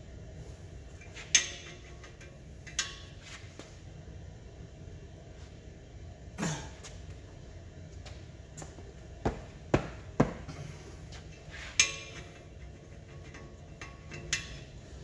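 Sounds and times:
ringing metal clank: 0:11.7 - 0:14.8.

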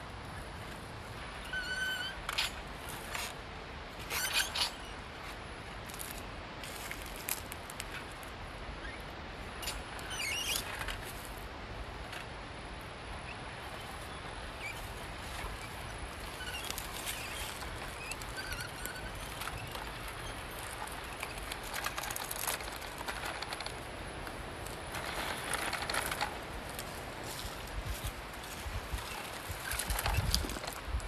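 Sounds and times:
steady outdoor hiss: 0:00.0 - 0:31.0
tyres crackling over stones: 0:14.7 - 0:31.0.

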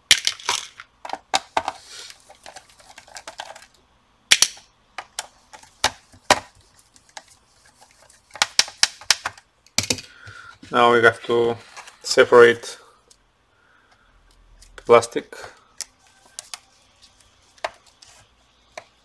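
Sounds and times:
screws dropped into plastic box: 0:00.1 - 0:01.8.

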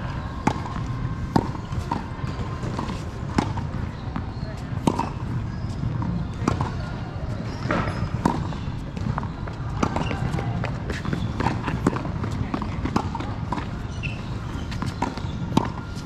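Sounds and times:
balls bouncing on hard court: 0:00.1 - 0:16.0
tennis balls hit with rackets: 0:00.1 - 0:16.0.

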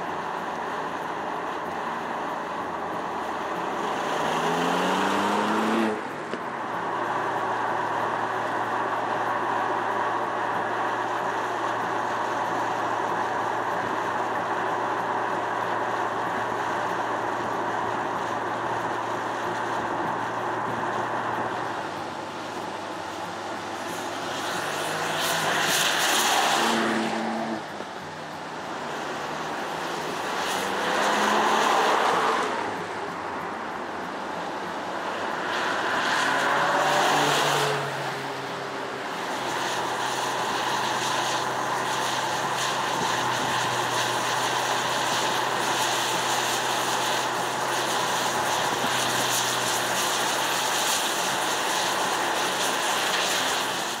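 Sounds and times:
car engine: 0:00.0 - 0:54.0
tyres on wet road spray hiss: 0:00.0 - 0:54.0
car driving past: 0:03.7 - 0:06.4, 0:21.1 - 0:33.2, 0:34.5 - 0:39.8.

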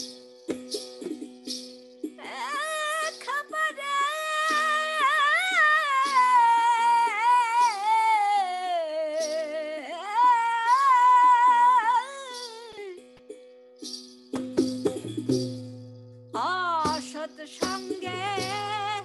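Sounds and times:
woman singing wordless melody: 0:02.2 - 0:13.1, 0:16.4 - 0:19.0.

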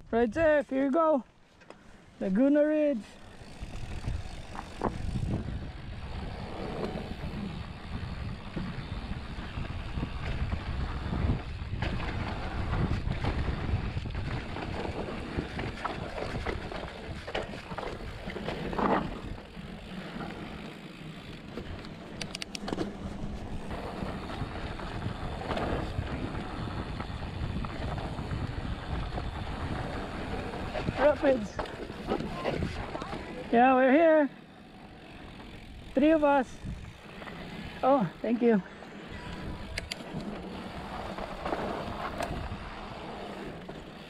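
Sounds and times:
bike tyres on dirt trail: 0:00.0 - 0:44.0
wind buffeting microphone: 0:03.2 - 0:19.9, 0:22.6 - 0:33.6, 0:35.2 - 0:38.2, 0:39.1 - 0:43.6.

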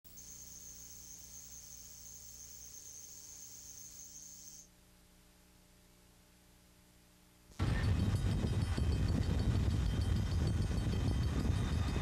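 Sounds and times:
high-pitched whine: 0:00.1 - 0:04.7
tape hiss: 0:00.1 - 0:10.9
low electrical hum: 0:00.1 - 0:12.0.

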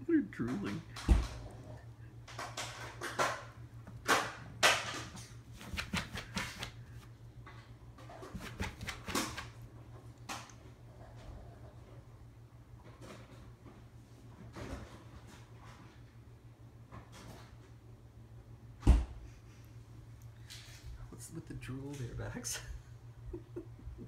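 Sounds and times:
puppy clicks and scuffles: 0:02.2 - 0:10.6.

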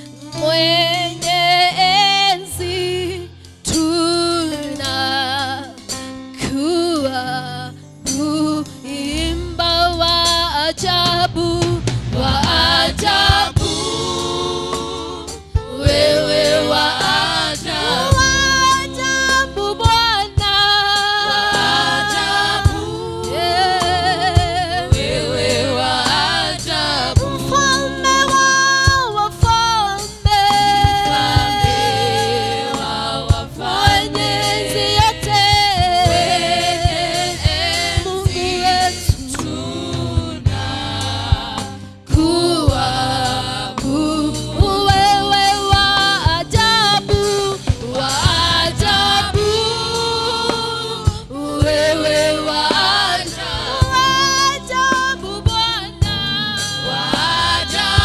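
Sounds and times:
instrumental accompaniment: 0:00.0 - 0:58.0
woman singing gospel song: 0:00.4 - 0:05.8, 0:06.4 - 0:58.0
backing singers: 0:11.4 - 0:20.0, 0:21.0 - 0:28.8, 0:30.3 - 0:58.0.

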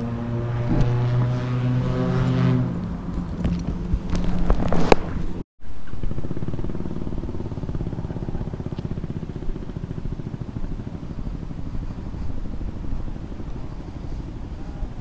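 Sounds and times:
motorcycle engine idling: 0:05.7 - 0:15.0.

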